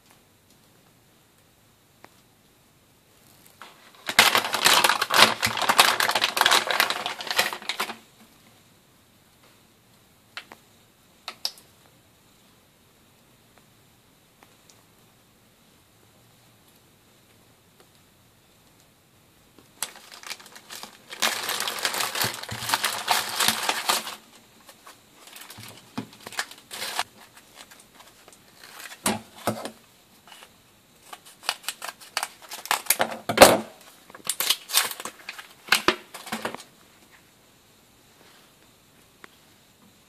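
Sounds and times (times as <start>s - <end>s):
plastic packaging crinkling: 3.4s - 8.1s, 19.8s - 36.7s.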